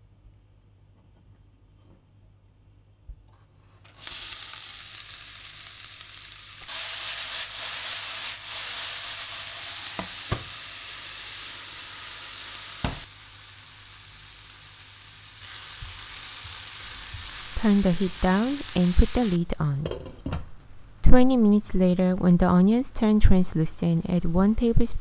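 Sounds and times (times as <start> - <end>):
onions sizzling in pan: 3.9 - 19.4.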